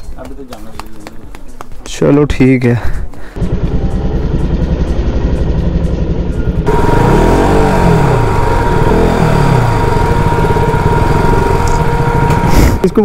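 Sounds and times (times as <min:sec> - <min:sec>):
motorcycle engine revving: 0:03.4 - 0:13.0.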